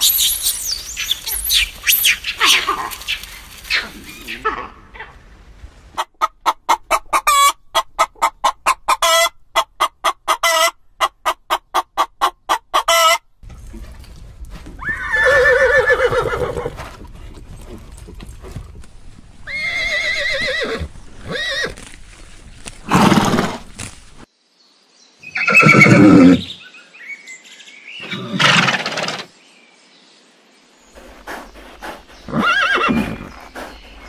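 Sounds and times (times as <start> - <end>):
horses neighing: 14.8 - 18.8, 19.4 - 21.8, 22.8 - 23.7, 25.4 - 26.5, 31.0 - 34.0.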